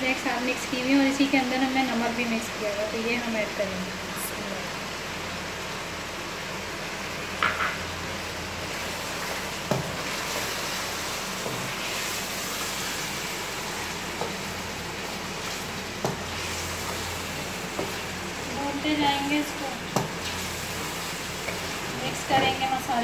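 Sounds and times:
chicken sizzling in oil: 0:00.0 - 0:23.0.

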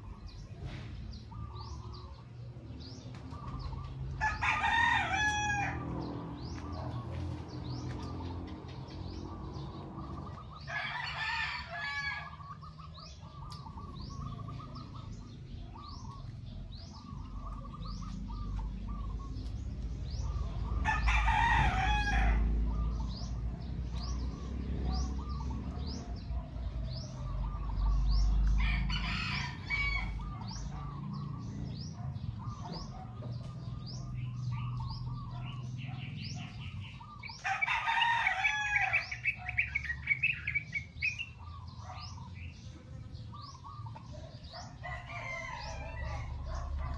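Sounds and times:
birds chirping: 0:00.0 - 0:46.9
rooster crowing: 0:04.2 - 0:06.0, 0:10.6 - 0:12.6, 0:20.8 - 0:22.6, 0:28.6 - 0:30.5, 0:37.2 - 0:39.6, 0:44.5 - 0:46.9.

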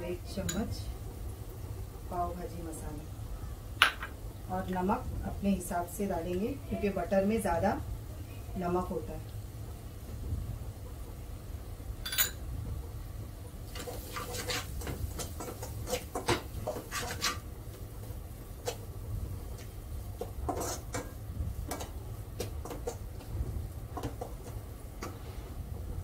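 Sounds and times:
steady low hum: 0:00.0 - 0:26.0
metal spatula scraping steel pot: 0:13.8 - 0:14.8, 0:15.8 - 0:17.4, 0:20.5 - 0:21.0.

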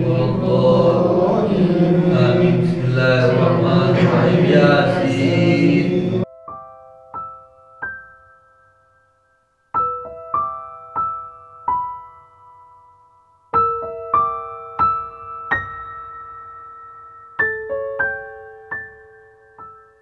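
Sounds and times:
voices chanting: 0:00.0 - 0:06.3
slow piano music: 0:00.0 - 0:20.0.

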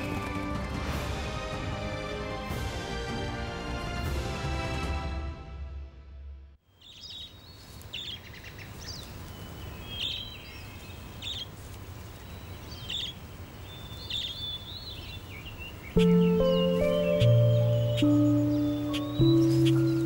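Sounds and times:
songbirds chirping and trilling: 0:06.7 - 0:20.0
soft woodland hiss: 0:06.8 - 0:20.0.

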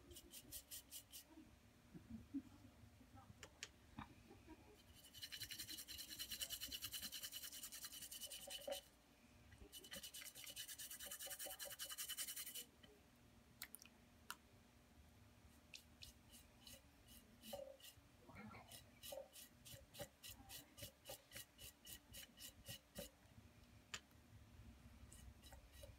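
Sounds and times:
paintbrush scrubbing pottery: 0:00.0 - 0:01.4, 0:04.7 - 0:08.9, 0:09.6 - 0:12.7, 0:15.8 - 0:23.2, 0:25.1 - 0:25.9.

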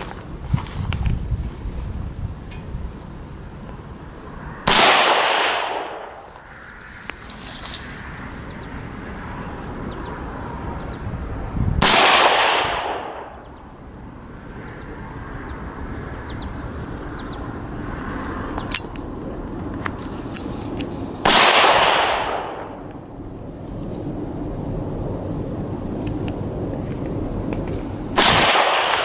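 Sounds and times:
rifle shots: 0:04.7 - 0:06.2, 0:11.8 - 0:13.5, 0:21.2 - 0:22.8, 0:28.2 - 0:29.0.

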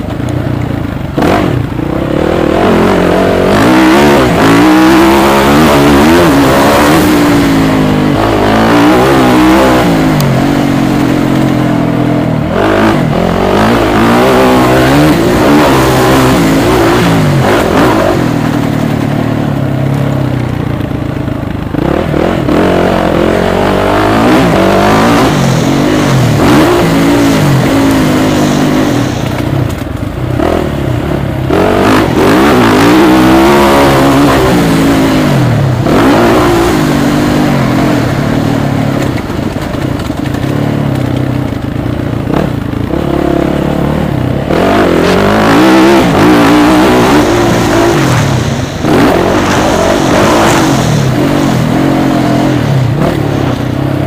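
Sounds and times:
motocross engine revving: 0:00.0 - 0:54.0.

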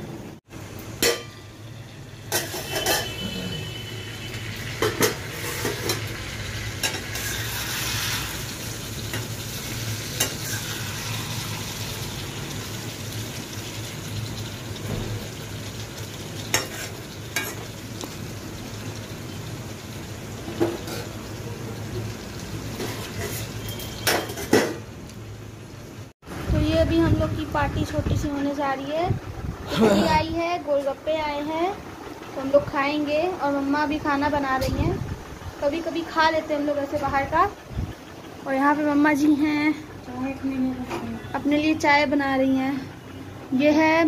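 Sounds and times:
vegetables sizzling in oil: 0:00.4 - 0:44.0
metal lid clanking: 0:01.0 - 0:01.4, 0:02.3 - 0:03.2
spatula scraping a pan: 0:04.8 - 0:06.1, 0:06.8 - 0:08.5, 0:10.1 - 0:11.6, 0:22.8 - 0:24.6.

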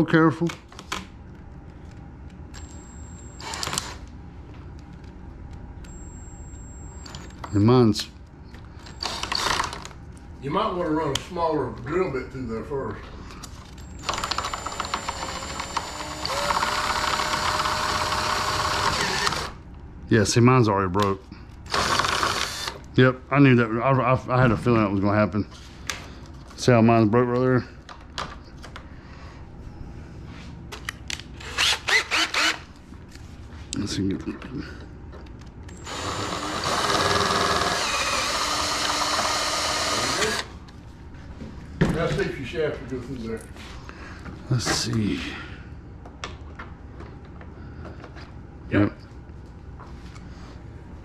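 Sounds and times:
cordless drill running: 0:02.6 - 0:04.0, 0:08.8 - 0:09.8, 0:13.8 - 0:19.6, 0:21.7 - 0:22.8, 0:31.4 - 0:32.6, 0:35.7 - 0:40.5
drill bit ticking in plastic: 0:14.0 - 0:19.5.

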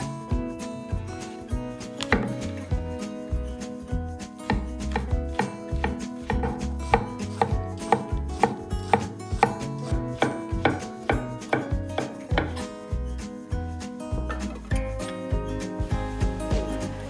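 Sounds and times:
knife chopping on wooden board: 0:02.0 - 0:02.5, 0:04.5 - 0:12.6.

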